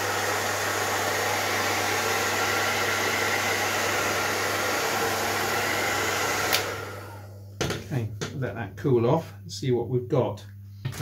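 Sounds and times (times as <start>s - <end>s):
hair dryer running: 0.0s - 8.3s.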